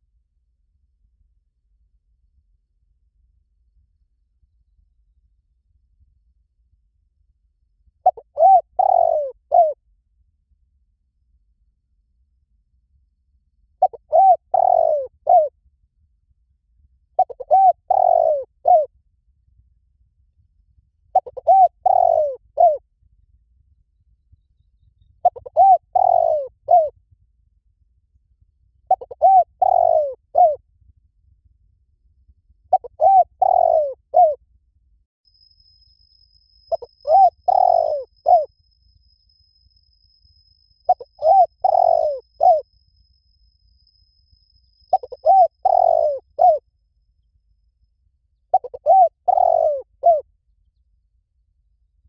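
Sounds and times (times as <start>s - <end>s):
dove cooing: 8.0s - 9.8s, 13.8s - 15.5s, 17.2s - 18.9s, 21.1s - 22.8s, 25.2s - 26.9s, 28.9s - 30.6s, 32.7s - 34.4s, 36.7s - 38.5s, 40.9s - 42.7s, 44.9s - 46.6s, 48.5s - 50.2s.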